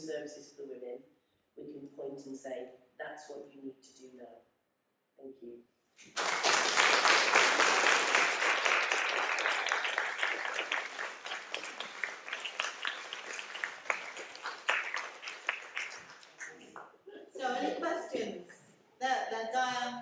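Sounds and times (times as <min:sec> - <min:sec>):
audience applauding: 0:06.0 - 0:16.8.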